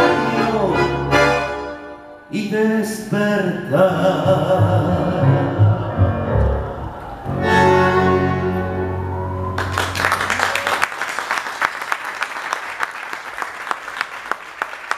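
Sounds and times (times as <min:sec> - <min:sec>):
tango orchestra holding a chord: 0:00.0 - 0:02.3, 0:04.6 - 0:10.1
audience applause: 0:09.1 - 0:14.9.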